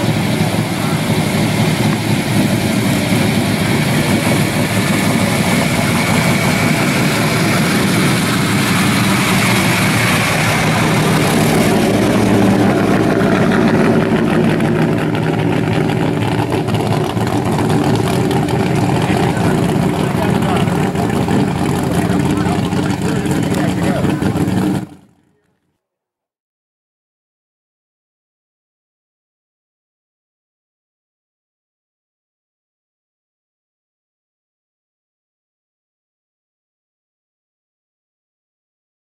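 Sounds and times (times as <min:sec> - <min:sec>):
pickup truck engine running: 0:00.0 - 0:25.4.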